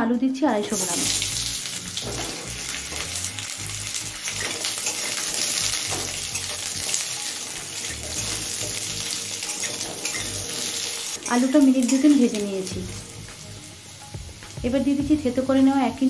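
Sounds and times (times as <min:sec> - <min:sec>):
spatula scraping a pan: 0:00.6 - 0:03.2, 0:04.2 - 0:12.2
potatoes sizzling in oil: 0:00.6 - 0:16.0.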